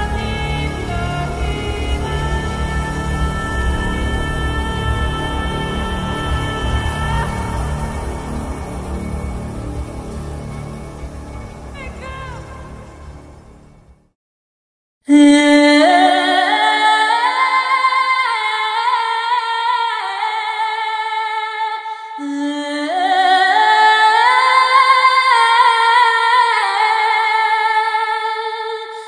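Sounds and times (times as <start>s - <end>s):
wordless high vocal melody: 0.0s - 13.6s.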